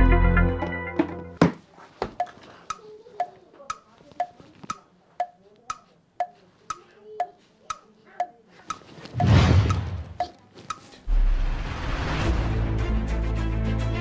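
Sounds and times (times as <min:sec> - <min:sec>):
clock ticking: 0:02.2 - 0:11.0.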